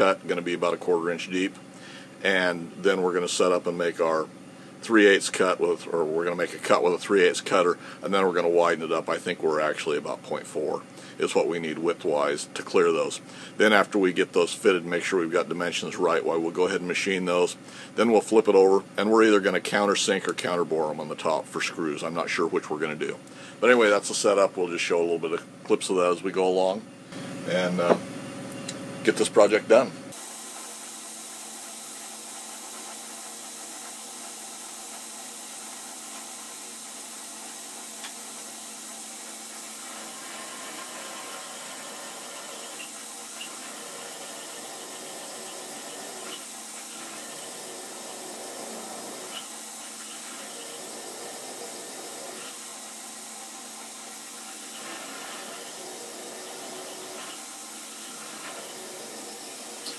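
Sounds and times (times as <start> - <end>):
milling machine drilling steel: 30.1 - 59.9.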